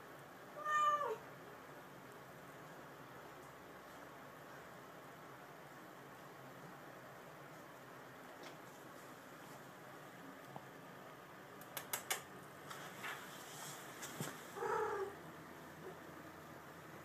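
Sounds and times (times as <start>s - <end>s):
cat crying: 0.6s - 1.2s.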